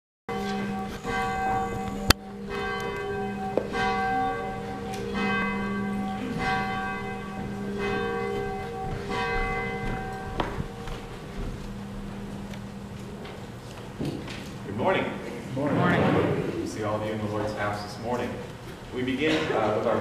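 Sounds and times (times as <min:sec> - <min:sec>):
church bell tolling: 0:00.3 - 0:13.6.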